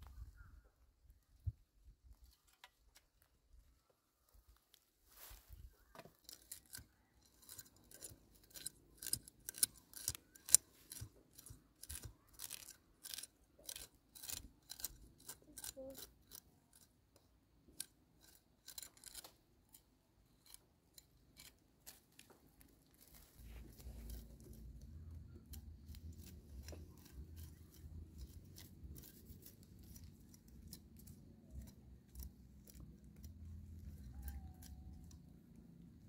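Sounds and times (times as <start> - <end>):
machete blade scraping tuber: 6.1 - 16.9, 17.8 - 35.3.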